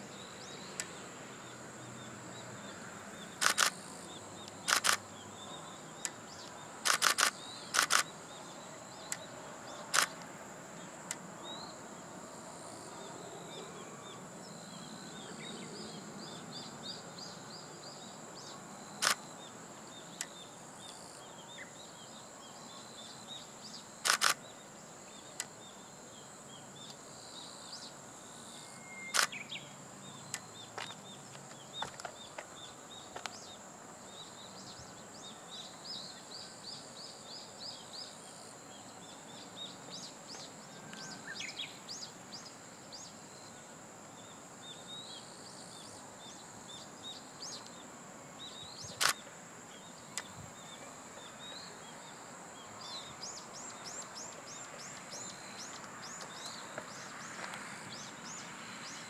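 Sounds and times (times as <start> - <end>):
sharp clicks: 3.4 - 3.8, 4.4 - 5.0, 6.8 - 8.1, 9.9 - 10.3, 19.0 - 19.2, 24.0 - 24.4, 29.1 - 29.4.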